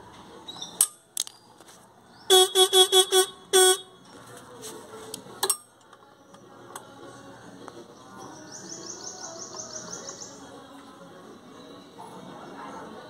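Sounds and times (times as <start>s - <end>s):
motorcycle horn beeps: 2.3s - 4.0s.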